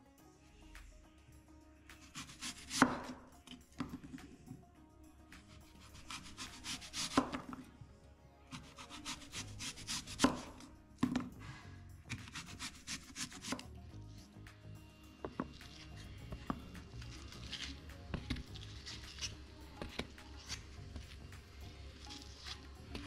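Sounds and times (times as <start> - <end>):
knife slicing apple: 2.0 - 4.3, 5.4 - 7.7, 8.5 - 11.3, 12.1 - 13.6, 15.2 - 23.0.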